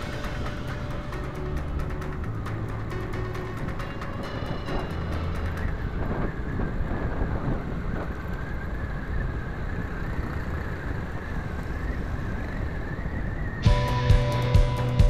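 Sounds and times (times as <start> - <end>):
music: 0.0 - 6.6, 13.6 - 15.0
motorcycle engine running: 0.0 - 12.4, 13.6 - 15.0
wind and road noise: 0.0 - 15.0.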